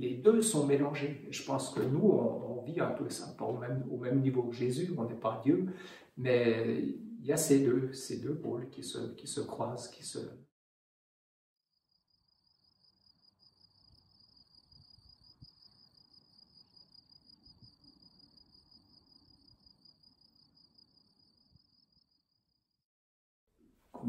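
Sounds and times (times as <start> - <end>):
crickets chirring: 11.9 - 22.6.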